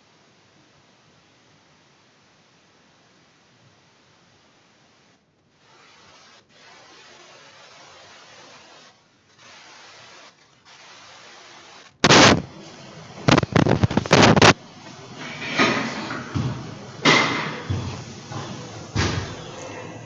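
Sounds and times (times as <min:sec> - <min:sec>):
rubbing hissing noise: 0:05.5 - 0:20.0
loud clatter: 0:12.0 - 0:12.5.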